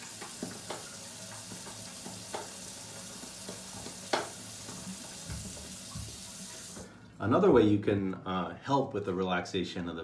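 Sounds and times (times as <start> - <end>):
sink tap running: 0.0 - 7.0.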